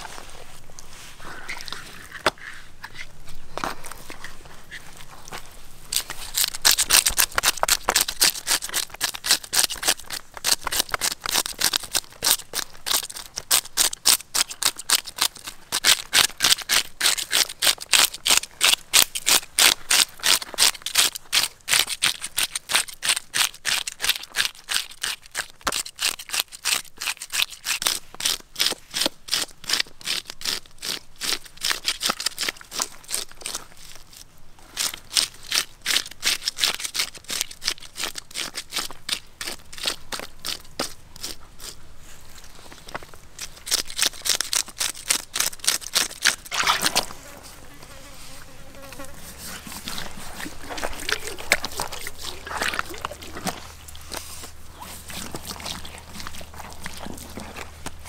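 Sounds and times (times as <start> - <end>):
fish scaler scraping scales: 49.2 - 58.0.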